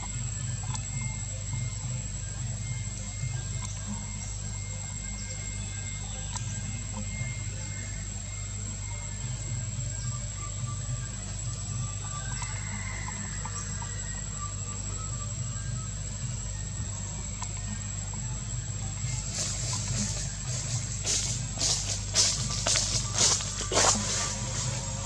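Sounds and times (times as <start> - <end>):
constant low hum: 0.0 - 25.0
high-pitched insect drone: 0.0 - 25.0.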